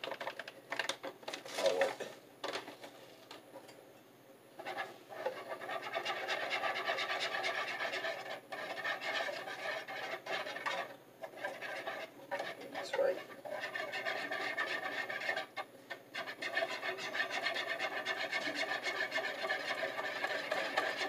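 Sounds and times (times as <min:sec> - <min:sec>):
wire whisk scraping a bowl: 0:04.6 - 0:21.0.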